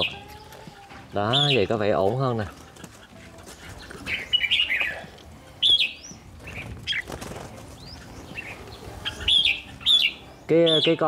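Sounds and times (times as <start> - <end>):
bird chirps and whistles: 5.6 - 6.2, 9.0 - 11.0.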